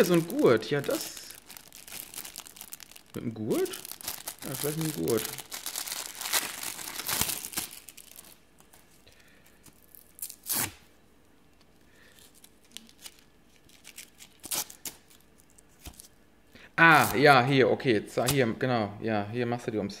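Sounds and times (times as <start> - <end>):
plastic bag crinkling and tearing: 0.0 - 8.8, 12.1 - 16.1.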